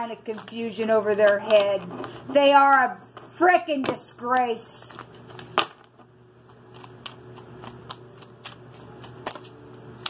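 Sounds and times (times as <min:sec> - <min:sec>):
cards being shuffled: 0:04.4 - 0:10.0.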